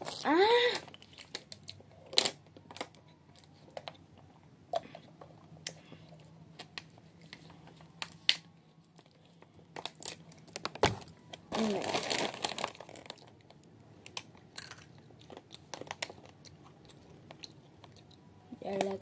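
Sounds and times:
person crying out: 0.2s - 0.8s
chips crunching while chewed: 9.8s - 18.2s.

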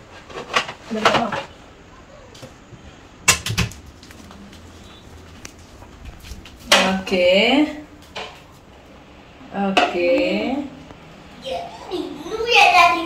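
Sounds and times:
sharp knocks and clicks: 3.3s - 4.0s.

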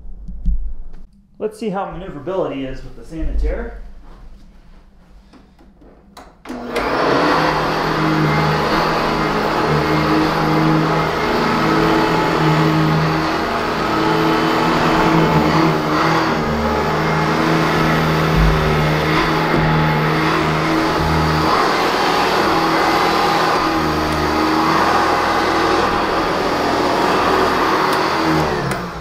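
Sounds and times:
vacuum cleaner running on carpet: 6.5s - 29.0s.

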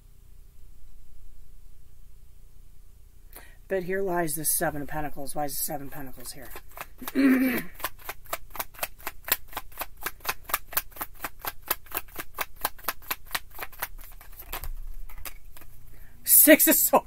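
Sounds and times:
cards being shuffled: 5.8s - 15.9s.

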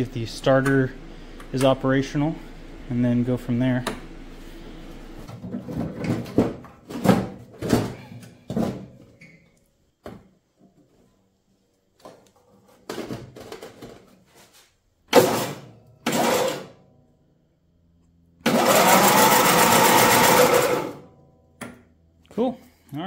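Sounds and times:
electric starter cranking engine: 18.4s - 21.1s.

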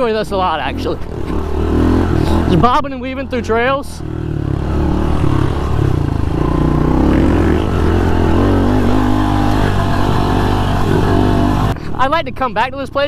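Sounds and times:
motorbike engine revving: 0.0s - 11.8s.

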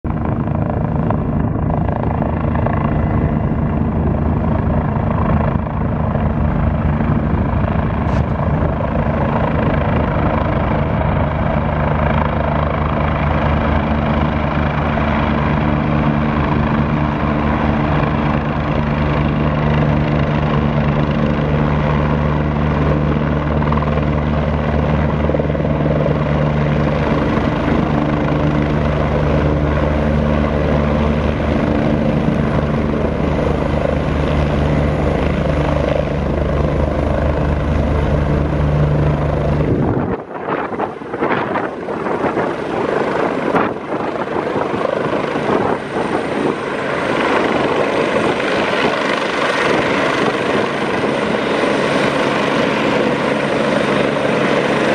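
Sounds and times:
helicopter rotors and engines: 0.0s - 54.9s
constant low hum: 0.1s - 12.8s.

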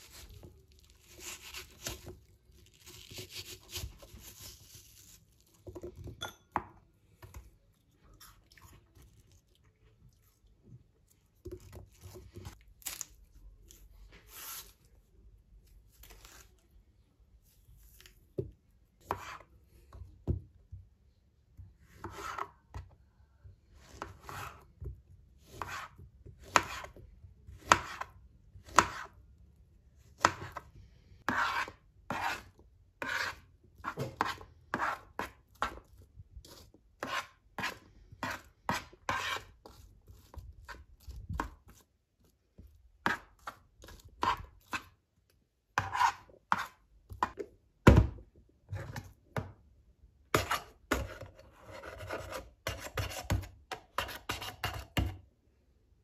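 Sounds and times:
knife chopping on plastic board: 18.4s - 19.5s, 23.9s - 29.2s, 30.2s - 30.7s, 31.3s - 35.9s, 36.5s - 41.7s, 45.8s - 48.2s
spatula scraping plastic cup: 31.3s - 41.8s, 45.8s - 47.4s, 50.4s - 55.1s.

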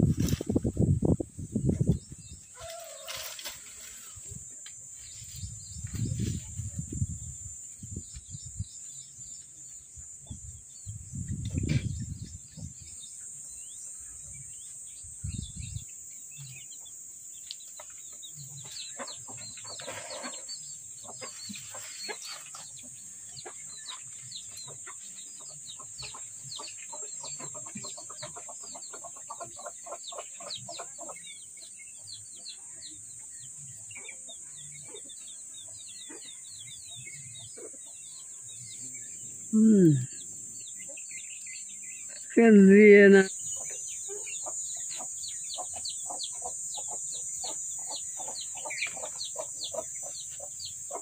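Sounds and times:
small birds chirping: 0.0s - 51.0s
chickens clucking: 16.3s - 42.2s, 43.0s - 51.0s.

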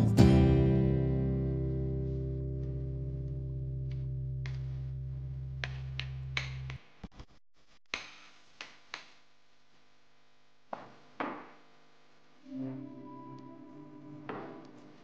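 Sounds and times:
background music: 0.0s - 5.8s, 12.5s - 15.0s.

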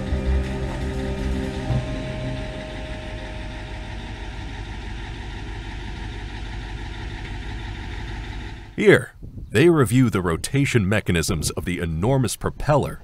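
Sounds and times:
engine idling: 0.0s - 8.8s.

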